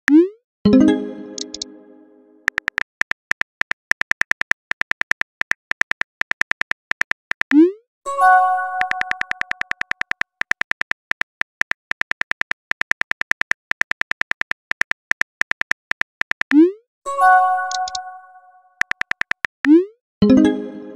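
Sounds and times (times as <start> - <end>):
message chime: 0.7 - 2.4
phone keyboard typing clicks: 1.4 - 1.7, 2.5 - 7.6, 8.8 - 16.6, 17.7 - 18.0, 18.8 - 19.8.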